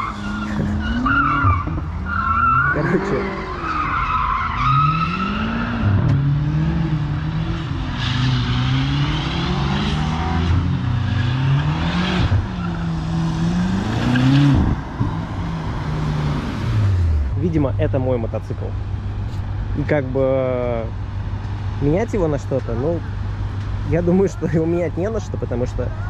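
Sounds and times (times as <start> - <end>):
tyres squealing: 0.0 - 5.6
car engine revving: 0.0 - 26.0.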